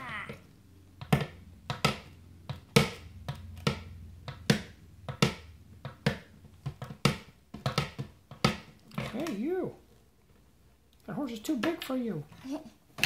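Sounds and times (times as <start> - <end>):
toy hooves tapping on tabletop: 0.3 - 9.4.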